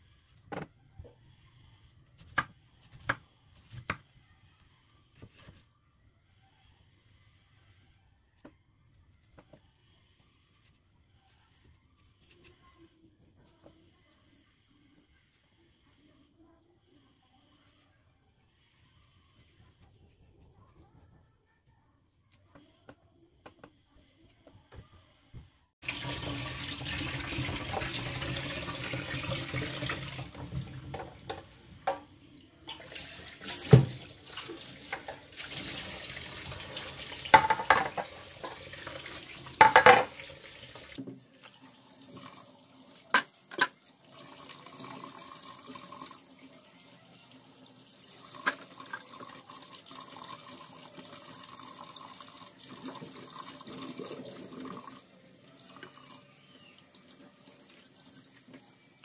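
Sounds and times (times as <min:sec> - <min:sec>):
tap water running into sink: 0:25.8 - 0:32.0, 0:32.7 - 0:46.4, 0:48.1 - 0:56.2
dishes clattering against sink: 0:37.3 - 0:38.6, 0:39.6 - 0:40.2.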